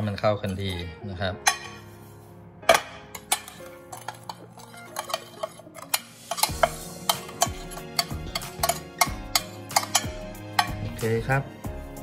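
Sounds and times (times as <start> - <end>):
utensil scraping against bowl: 3.2 - 10.9.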